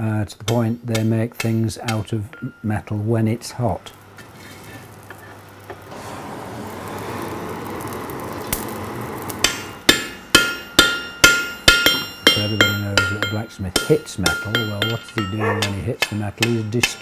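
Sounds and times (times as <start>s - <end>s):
hammer ringing on anvil: 0.5s - 3.0s, 9.4s - 17.0s
forge fire rushing: 4.0s - 9.9s.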